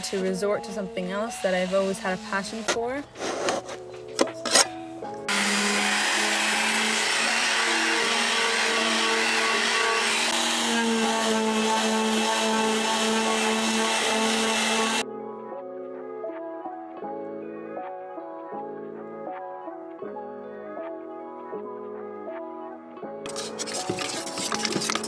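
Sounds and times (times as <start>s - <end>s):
background music: 0.0s - 25.0s
putty knife scraping paint: 2.2s - 4.7s, 23.3s - 25.0s
orbital sander running: 5.3s - 15.0s.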